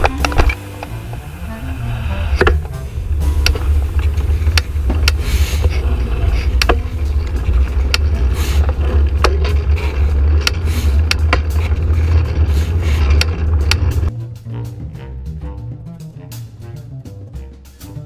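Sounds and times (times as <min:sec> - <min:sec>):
wind rumble on microphone: 0:00.0 - 0:14.1
bicycle clicks and rattles: 0:03.4 - 0:14.1.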